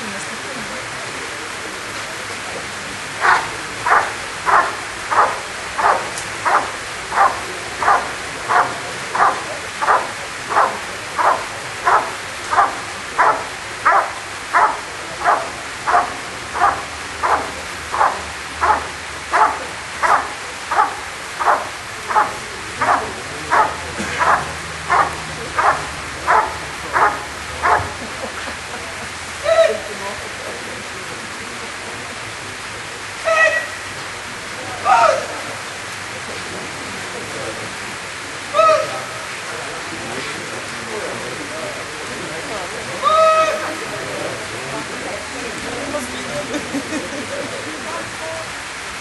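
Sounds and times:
dog barking: 0:03.2 - 0:28.0.

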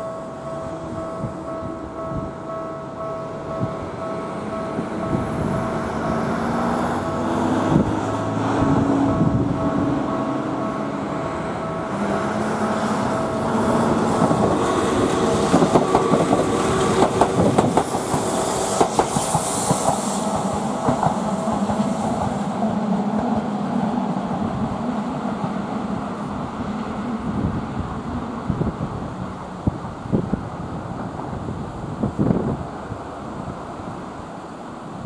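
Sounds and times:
electric train running: 0:00.0 - 0:32.4
wheels clicking over rail joints: 0:11.8 - 0:22.4.

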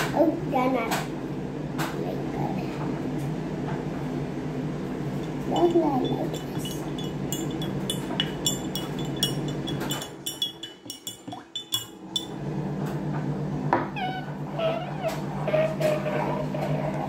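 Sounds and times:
steady low hum: 0:00.0 - 0:17.0
hard object tapping glass: 0:05.2 - 0:12.4.

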